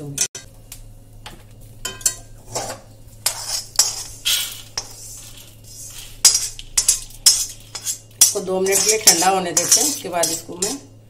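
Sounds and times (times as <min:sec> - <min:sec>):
metal skimmer scraping pan: 0:01.9 - 0:10.9.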